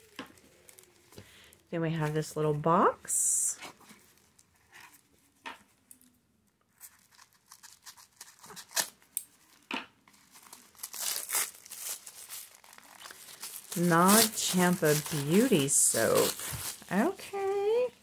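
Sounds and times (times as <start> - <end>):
tissue paper crinkling and tearing: 0.0 - 1.2, 6.7 - 17.9.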